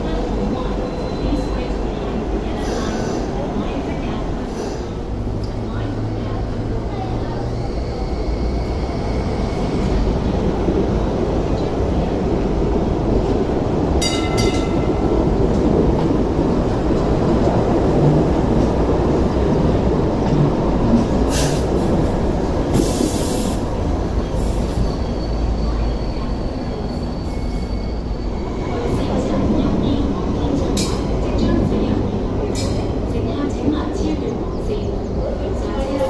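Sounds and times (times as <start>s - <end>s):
light rail train rumbling past: 0.0s - 36.0s
high-pitched wheel squeal: 24.4s - 28.8s.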